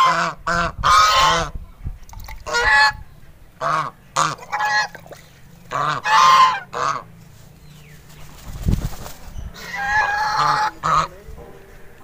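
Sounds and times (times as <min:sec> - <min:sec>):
geese honking: 0:00.0 - 0:01.5, 0:02.4 - 0:03.0, 0:03.6 - 0:07.2, 0:09.6 - 0:11.9.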